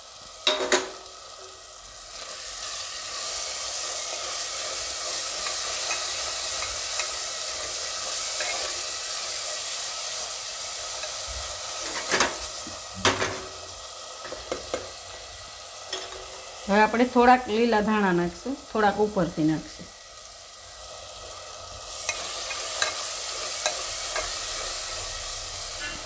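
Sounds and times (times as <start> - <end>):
food sizzling in oil: 0.0 - 26.0
spatula stirring: 21.9 - 24.8.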